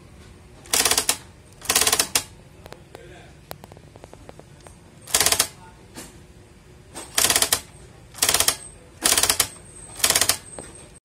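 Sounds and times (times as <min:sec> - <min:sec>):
typewriter mechanism clicking: 0:00.7 - 0:02.3, 0:05.1 - 0:05.5, 0:07.1 - 0:10.5.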